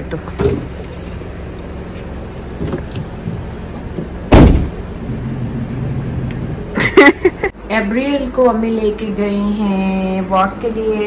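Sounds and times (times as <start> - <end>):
car engine idling: 0.0 - 7.5
car door slam: 2.6 - 4.8.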